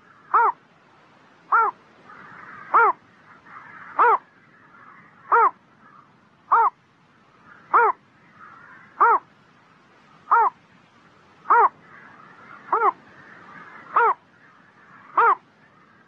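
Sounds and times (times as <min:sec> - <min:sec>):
small heron calling: 0:00.0 - 0:00.6, 0:01.5 - 0:06.8, 0:07.5 - 0:09.3, 0:10.3 - 0:10.6, 0:11.4 - 0:14.2, 0:14.9 - 0:15.4.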